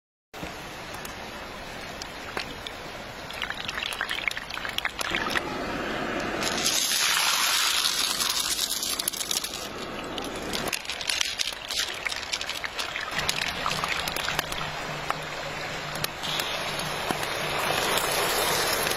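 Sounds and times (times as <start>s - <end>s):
water sloshing and trickling: 0.9s - 5.5s, 6.4s - 18.9s
hissing rush: 5.1s - 18.9s
pebbles clattering into stone pot: 6.4s - 14.6s.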